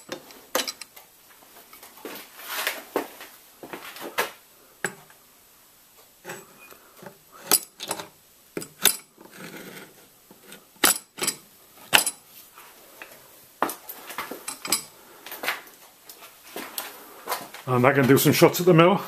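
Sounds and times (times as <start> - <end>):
metallic clinks and knocks: 0.0 - 1.0, 7.4 - 9.2, 10.8 - 12.2, 14.4 - 15.0
metal scraping rub: 6.2 - 11.4.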